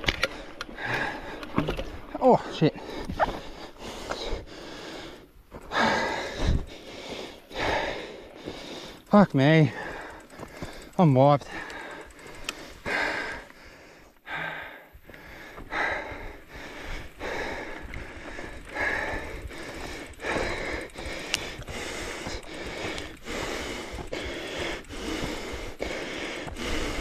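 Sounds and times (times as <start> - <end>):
person breathing heavily: 0.1 - 27.0.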